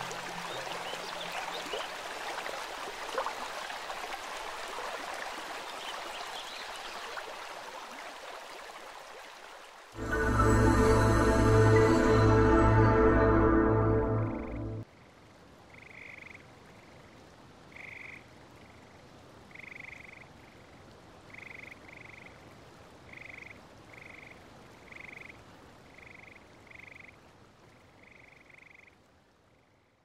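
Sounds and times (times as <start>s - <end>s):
low steady hiss: 0.0s - 30.0s
frog croaking: 14.9s - 22.5s, 23.1s - 27.2s, 27.8s - 29.1s.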